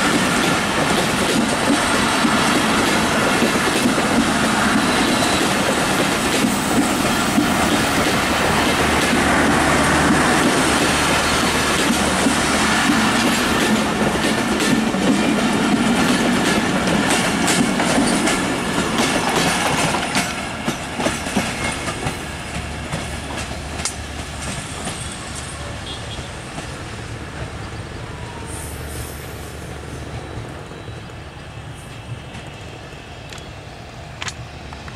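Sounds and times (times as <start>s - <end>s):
train wheels clattering over rail joints: 0.0s - 25.5s.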